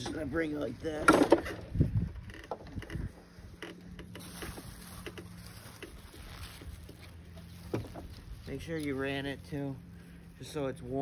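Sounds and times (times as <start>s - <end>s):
lawn mower knocks and clatter: 0.0s - 3.0s, 7.6s - 8.2s.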